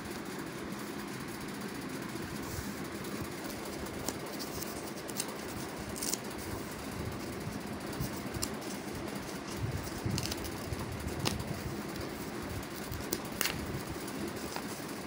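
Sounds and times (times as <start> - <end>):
low background hum: 0.0 - 15.0
stiff paper crinkling: 3.3 - 15.0.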